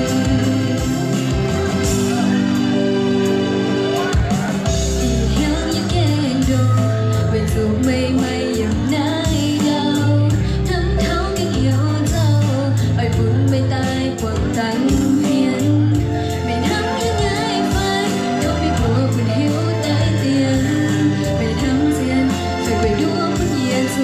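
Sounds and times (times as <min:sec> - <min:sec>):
woman singing through pa: 0:00.0 - 0:01.3, 0:05.0 - 0:24.0
electronic backing music: 0:00.0 - 0:24.0.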